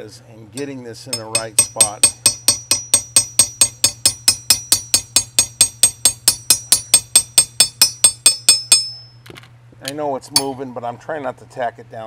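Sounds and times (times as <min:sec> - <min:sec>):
small hammer tapping metal: 0:00.6 - 0:09.2.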